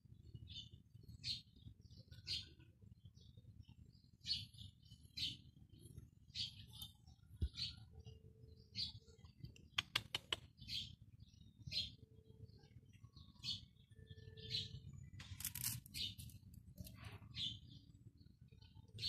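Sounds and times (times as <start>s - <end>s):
small bird chirping: 0.0s - 19.0s
sharp clicks: 9.6s - 10.5s
scratchy rustle: 15.2s - 16.4s.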